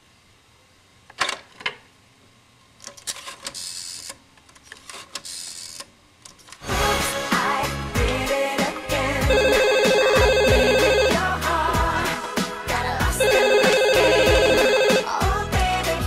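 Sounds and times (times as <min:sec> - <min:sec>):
rotary dial whirring and clicking: 0:02.8 - 0:06.6
loud music with a beat: 0:06.7 - 0:16.0.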